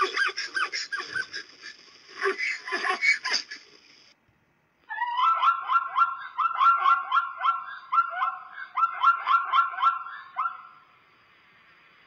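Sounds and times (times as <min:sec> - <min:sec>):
zebra barking yelps: 0:04.9 - 0:10.9.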